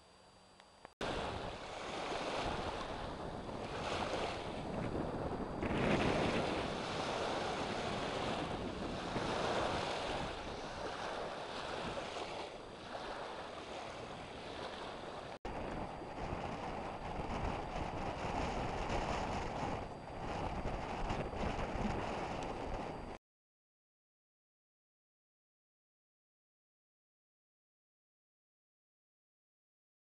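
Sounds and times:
waves washing onto shore: 1.0s - 23.1s
wind buffeting microphone: 1.0s - 23.2s.

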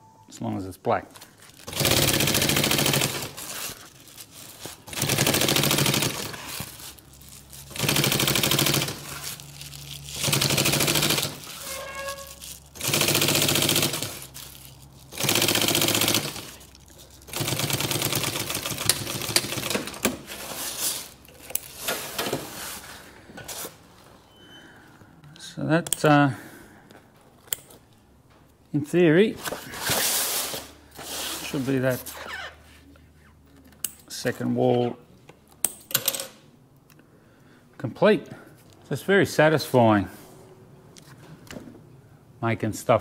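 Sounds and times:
sewing machine stitching: 1.7s - 3.6s, 4.9s - 6.6s, 7.7s - 9.3s, 10.2s - 12.1s, 12.8s - 14.3s, 15.1s - 16.6s, 17.3s - 20.2s.

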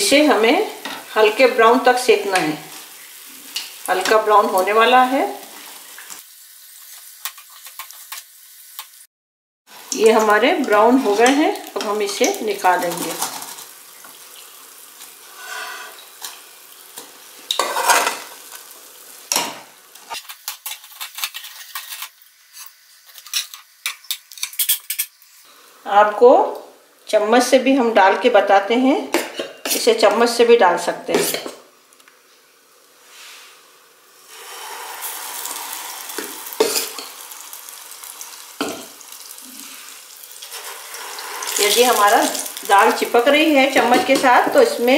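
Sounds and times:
fritters sizzling in hot oil: 0.0s - 9.1s, 9.7s - 27.6s, 31.7s - 44.9s
metal skimmer scraping a pan: 15.3s - 16.0s.

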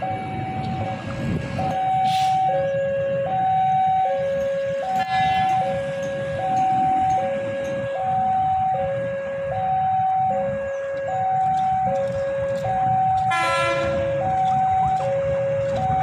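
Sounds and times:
two-tone warning siren: 0.0s - 16.0s.

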